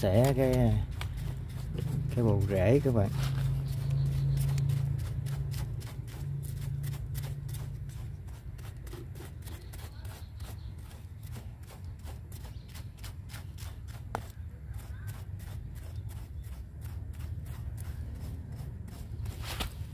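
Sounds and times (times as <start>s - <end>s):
low hum: 0.0s - 15.1s
brush scrubbing soil and roots: 0.0s - 19.9s.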